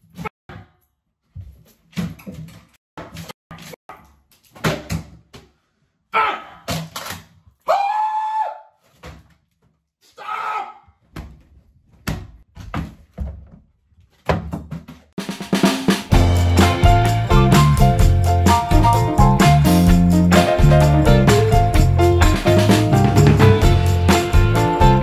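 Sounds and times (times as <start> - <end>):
man screaming and yelling: 6.1 - 6.7, 7.7 - 8.7, 10.1 - 10.9.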